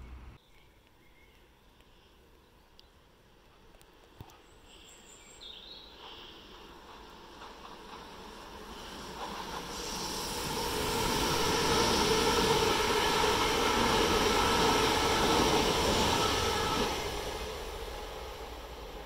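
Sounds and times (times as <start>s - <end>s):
train passing rumble and hum: 0.0s - 0.4s, 5.8s - 19.0s.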